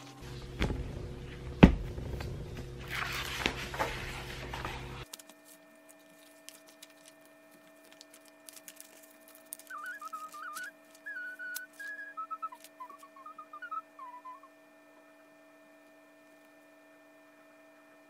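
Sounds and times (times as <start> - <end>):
faint steady hum: 0.0 - 18.0
book pages turning: 2.1 - 13.3
small ticks: 7.8 - 13.2.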